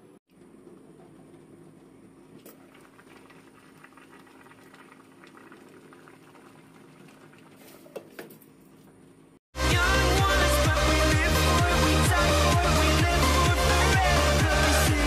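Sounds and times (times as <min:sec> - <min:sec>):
soup bubbling at a boil: 0:02.2 - 0:07.7.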